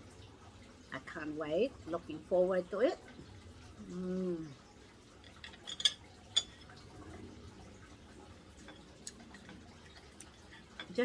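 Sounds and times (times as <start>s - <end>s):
cutlery clinking on plate: 5.2s - 6.7s.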